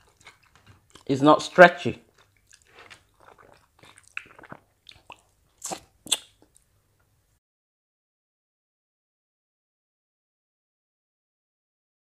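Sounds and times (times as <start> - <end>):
close chewing and wet mouth sounds: 0.0 - 6.7
lip smacks: 0.1 - 6.7.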